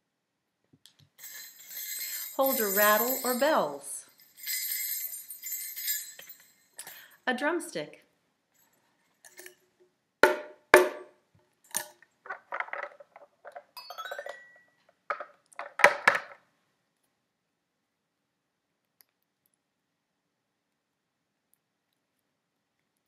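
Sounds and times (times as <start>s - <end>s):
toy xylophone notes: 1.2s - 6.4s.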